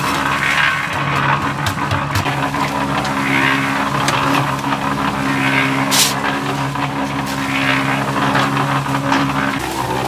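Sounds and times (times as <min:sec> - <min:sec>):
motor humming: 0:00.0 - 0:10.0
sharp scrape or clatter: 0:05.3 - 0:09.6
hiss: 0:05.9 - 0:06.2.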